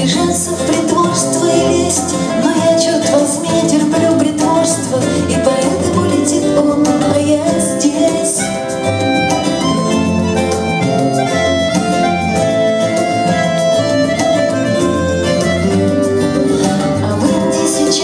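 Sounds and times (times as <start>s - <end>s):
woman singing: 0.0s - 9.0s, 15.3s - 18.0s
folk-rock band playing: 0.0s - 18.0s
violin: 0.0s - 18.0s
bayan melody: 7.1s - 18.0s.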